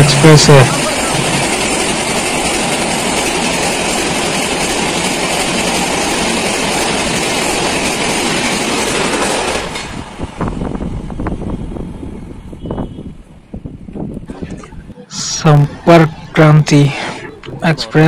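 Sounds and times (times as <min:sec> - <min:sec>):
train wheels rushing on rails: 0:00.0 - 0:14.2.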